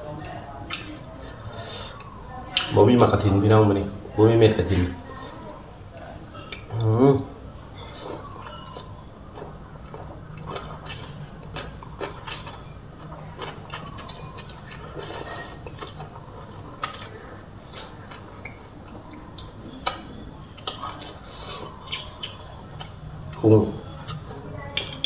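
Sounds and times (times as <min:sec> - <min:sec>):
noodles slurped and chewed: 0:07.8 - 0:24.4.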